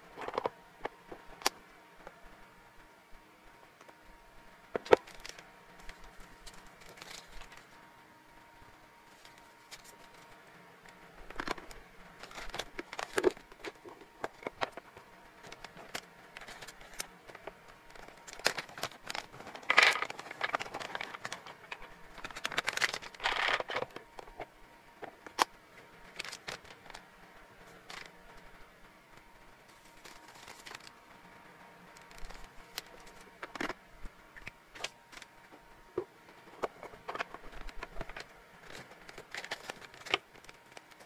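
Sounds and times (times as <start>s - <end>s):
packaging crinkling: 4.8s - 7.7s, 11.3s - 24.4s, 26.1s - 27.0s, 29.7s - 30.9s, 36.6s - 41.0s.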